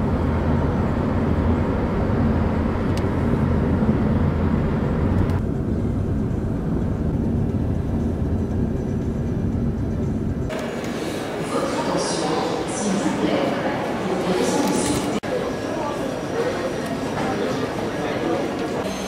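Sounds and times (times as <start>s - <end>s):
road and wind noise in car: 0.0s - 10.5s.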